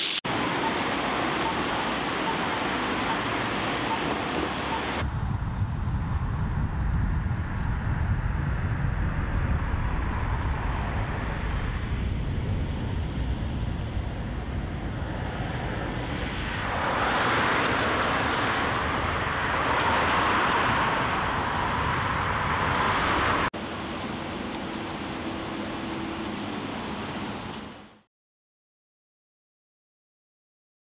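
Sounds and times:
road traffic: 0.0s - 28.1s
rush of passing vehicles: 0.3s - 28.1s
wind rumble on microphone: 3.9s - 27.8s.

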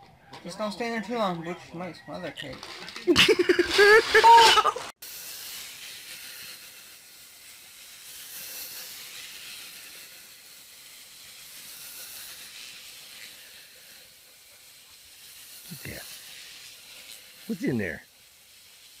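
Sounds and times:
faint outdoor hiss: 0.0s - 19.0s.

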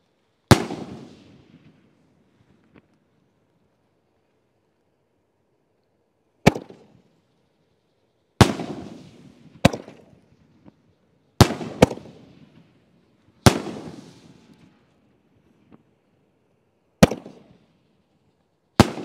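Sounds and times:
firework bangs with echoing rumble: 0.5s - 1.9s, 8.4s - 10.4s, 11.4s - 12.7s, 13.4s - 14.7s, 17.0s - 17.6s, 18.8s - 19.0s.

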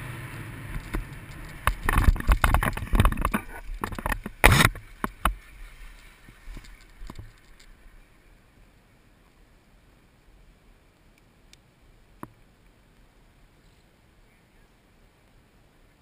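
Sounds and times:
wing knocking and rustling: 0.7s - 8.0s
wind buffeting microphone: 0.8s - 5.4s.

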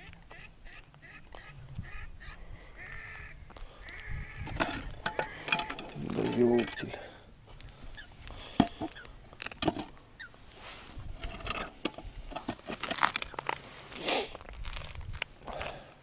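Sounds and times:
fishing tackle clicking and rustling: 4.4s - 7.0s, 8.4s - 10.1s, 10.9s - 13.7s.

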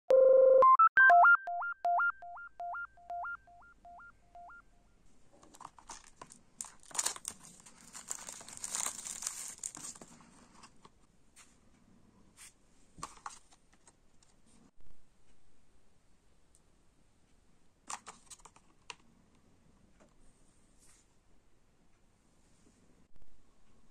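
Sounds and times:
electronic jingle of beeps: 0.1s - 4.8s
plastic shrink-wrap crinkling and tearing: 5.5s - 10.1s.

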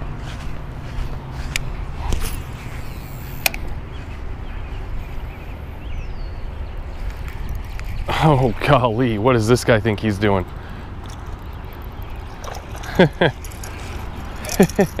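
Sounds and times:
sharp clicks: 3.0s - 3.8s, 10.4s - 15.0s.

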